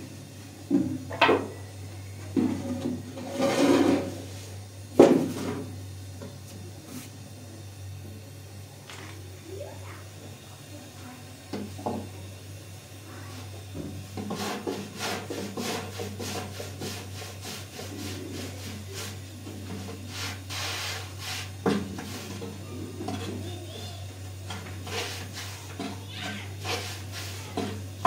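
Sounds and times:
rhythmic scraping strokes: 14.2 - 28.0.

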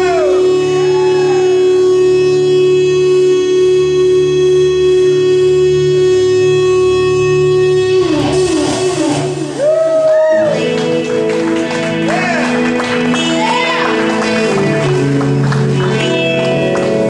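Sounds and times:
electric guitar sustained note: 0.0 - 17.0
live band playing: 0.0 - 17.0.

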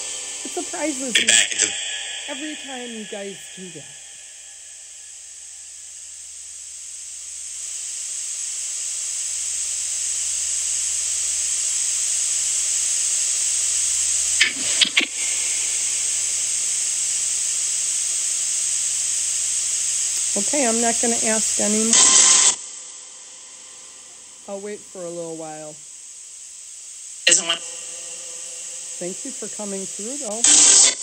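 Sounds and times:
static hiss: 0.0 - 31.0
brief crackle: 14.4 - 16.4, 21.9 - 22.6, 30.3 - 31.0.

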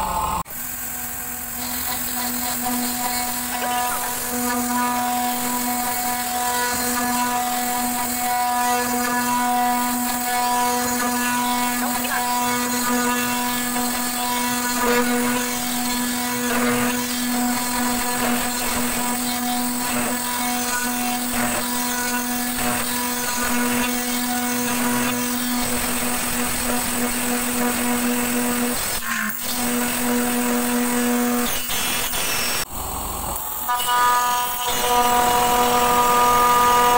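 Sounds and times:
milling machine spindle whine: 0.0 - 36.9.

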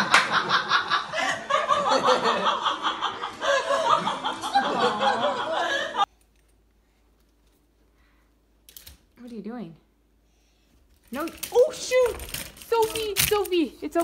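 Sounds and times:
people laughing: 0.0 - 6.1.

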